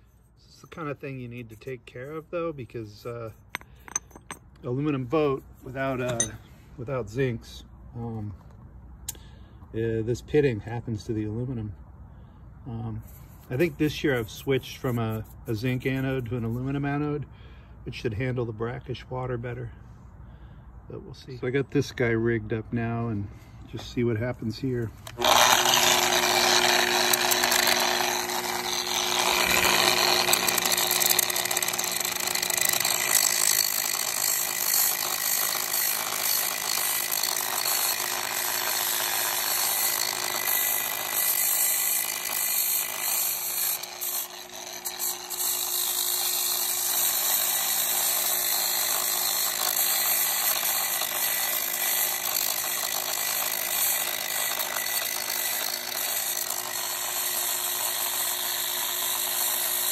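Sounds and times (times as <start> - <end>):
angle grinder grinding: 2.9 - 4.6, 5.6 - 6.4, 24.9 - 59.9.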